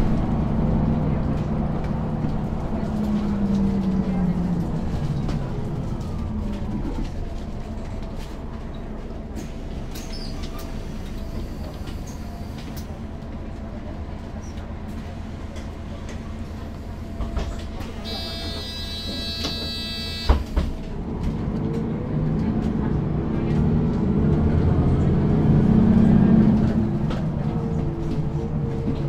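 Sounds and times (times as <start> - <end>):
bus engine rumble: 0.0 - 29.0
buzzing warning tone: 18.0 - 20.6.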